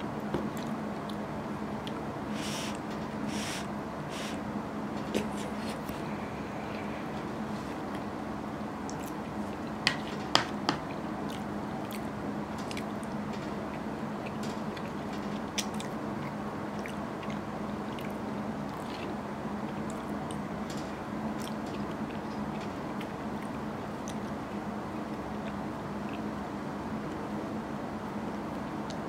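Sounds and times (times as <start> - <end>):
steady low hum: 0.0 - 29.0
faint chewing: 8.9 - 9.7, 10.9 - 20.4.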